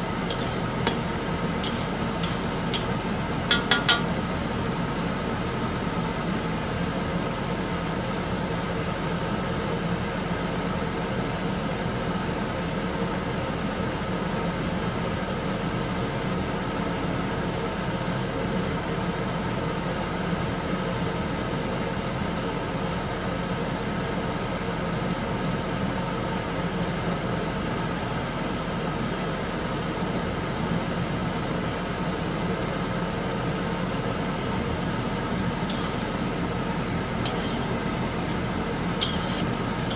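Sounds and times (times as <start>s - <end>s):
fat simmering and bubbling: 0.0s - 6.3s, 34.5s - 39.9s
faint constant hum: 0.0s - 39.9s.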